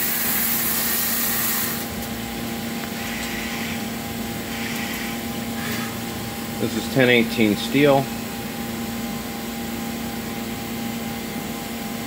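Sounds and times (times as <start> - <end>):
coolant spray hissing: 0.0 - 1.9
milling machine hum: 0.0 - 12.0.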